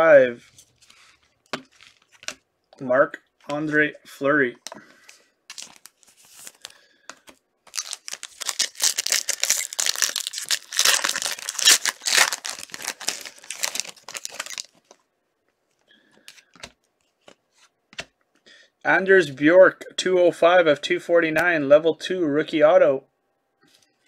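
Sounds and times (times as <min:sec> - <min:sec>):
wrapper tearing and crinkling: 0:05.5 - 0:06.8, 0:07.7 - 0:15.0.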